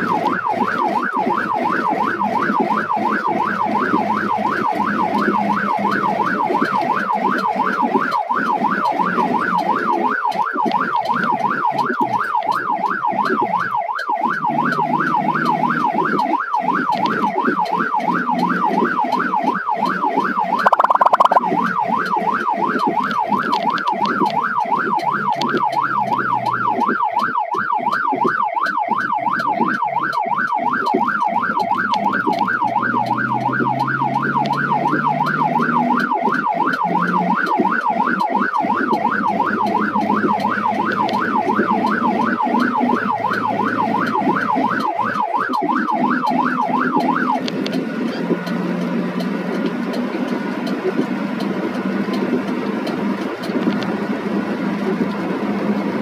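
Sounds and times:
siren yelping: 0.0 - 48.4
vehicle engine: 45.9 - 56.0.

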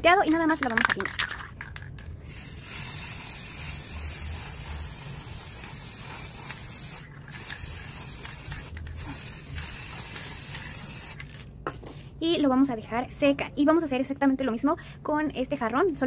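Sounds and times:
spray paint can hissing: 2.2 - 11.4.

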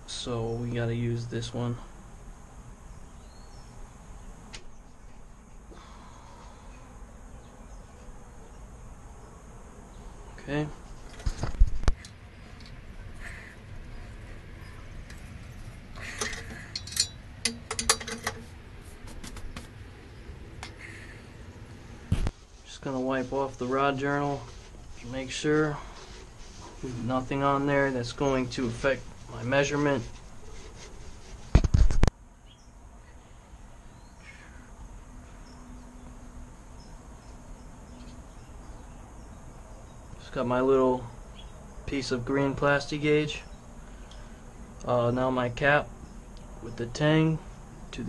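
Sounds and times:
metal clicks and clinks: 16.1 - 18.5
paper towel rustling: 22.2 - 32.0
faint handling sounds: 22.2 - 32.1.

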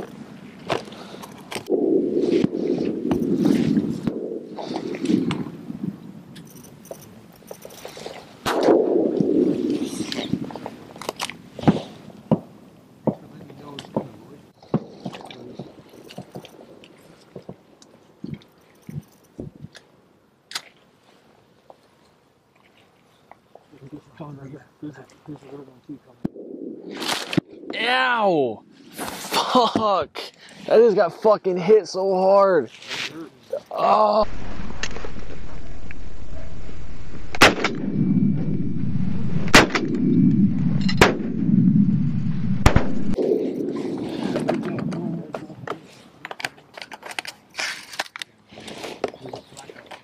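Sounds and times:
low rushing noise: 1.7 - 6.2, 26.3 - 29.3, 34.2 - 45.4
shotgun blasts: 37.3 - 37.9, 39.5 - 40.0, 41.0 - 41.3, 42.6 - 43.2.

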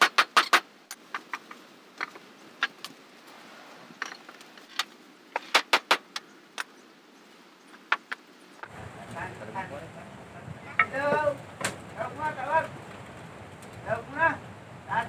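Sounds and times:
hammer striking wood: 0.0 - 0.6.

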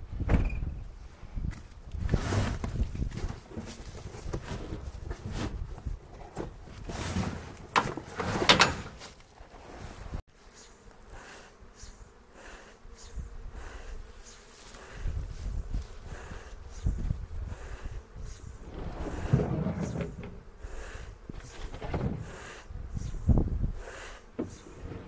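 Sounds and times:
bees buzzing: 10.3 - 25.0
low wind rumble: 14.9 - 25.0.

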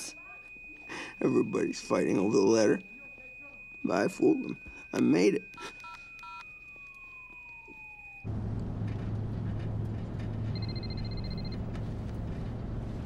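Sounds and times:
phone keypad beeps: 0.0 - 6.5, 10.5 - 11.6
mobile phone electronic ring: 0.0 - 8.3, 10.5 - 11.6
car cabin road rumble: 8.3 - 13.0.

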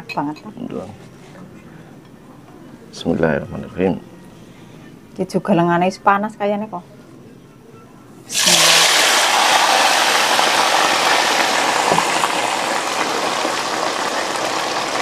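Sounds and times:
food sizzling in hot oil: 8.3 - 15.0.

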